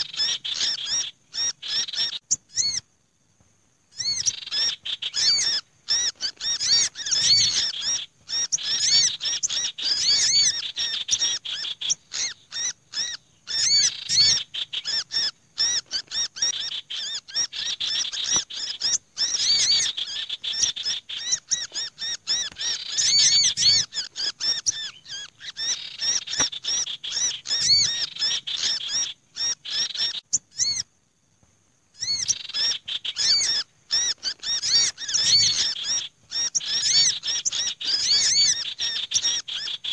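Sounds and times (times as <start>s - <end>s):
small birds chirping rapidly: 0.0s - 2.9s, 3.9s - 30.9s, 31.9s - 39.9s.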